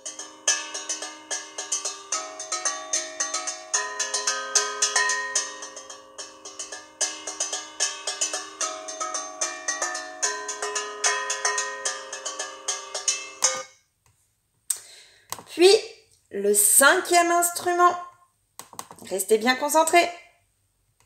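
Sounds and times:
struck pitched instrument melody: 0.0 - 13.7.

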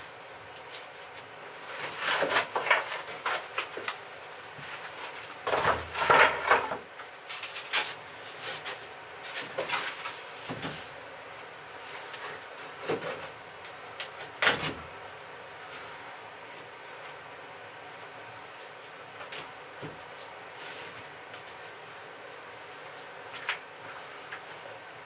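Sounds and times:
wooden boards knocking and scraping: 1.7 - 10.9.

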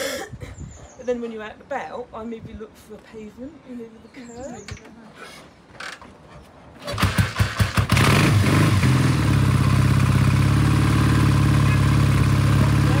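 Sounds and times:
motorcycle engine starting and idling: 6.8 - 13.0.

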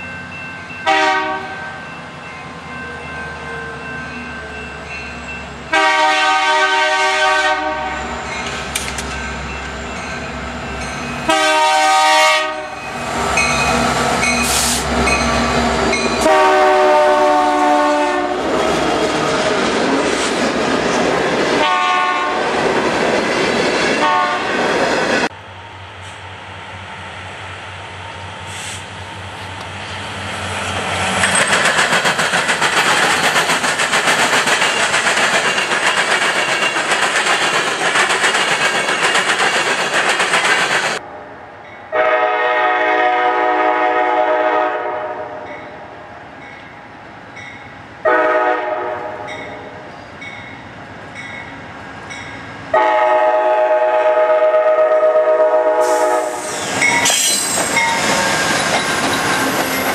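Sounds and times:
freight train passing: 0.0 - 59.9
locomotive air horn blasts: 0.8 - 1.8, 5.7 - 8.1, 11.3 - 12.8, 16.2 - 18.4, 21.6 - 22.4, 24.0 - 24.6, 41.9 - 45.4, 48.0 - 49.2, 52.7 - 56.7
locomotive engine and wheel noise: 24.8 - 41.1.

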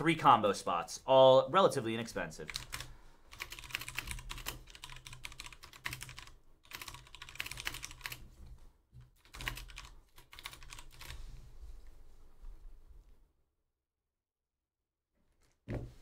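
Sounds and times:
computer keyboard typing: 2.5 - 8.2, 9.1 - 11.2.

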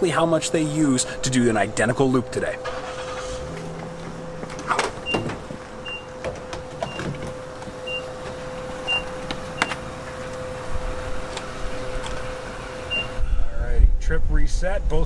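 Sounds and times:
fuel dispenser humming: 1.1 - 13.2.

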